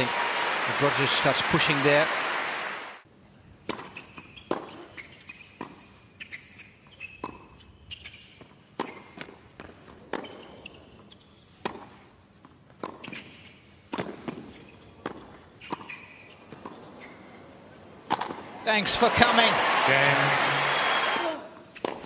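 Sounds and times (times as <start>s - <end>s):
tennis ball hit by racquets: 3.6s - 5.0s, 8.8s - 10.5s, 11.6s - 12.0s, 13.9s - 16.8s, 18.0s - 18.4s, 21.7s - 22.0s.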